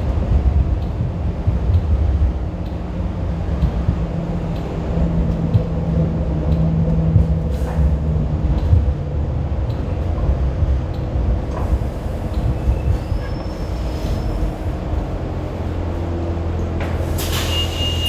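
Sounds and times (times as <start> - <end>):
train wheels rumbling: 0.0 - 18.0
high-pitched wheel squeal: 12.6 - 14.7, 17.2 - 18.0.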